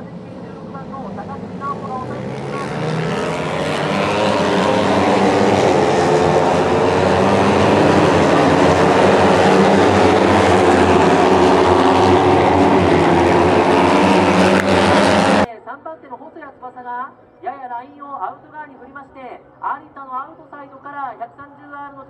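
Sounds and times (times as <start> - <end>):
motorcycles racing past: 0.0 - 15.5.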